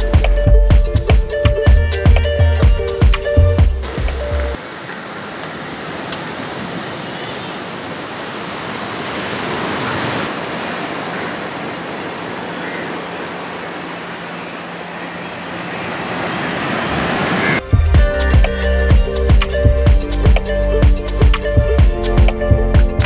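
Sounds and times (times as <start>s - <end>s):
ocean surf on sandy beach: 4.6s - 17.7s.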